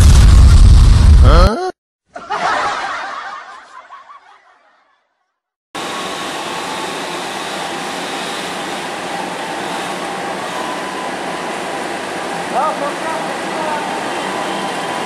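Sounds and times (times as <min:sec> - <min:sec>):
diesel locomotive running: 0:05.8 - 0:15.0.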